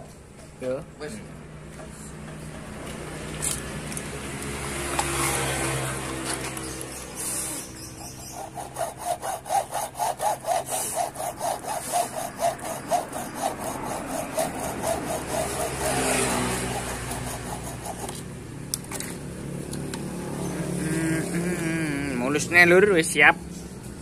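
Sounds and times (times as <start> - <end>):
hacksaw cutting metal: 7.4 - 19.0.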